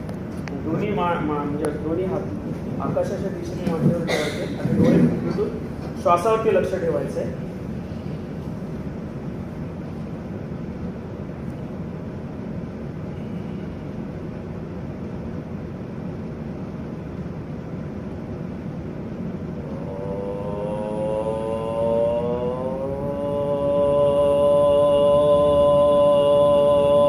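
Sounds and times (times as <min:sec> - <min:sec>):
steady low background noise: 0:00.0 - 0:27.0
rising pitched tone: 0:19.6 - 0:27.0.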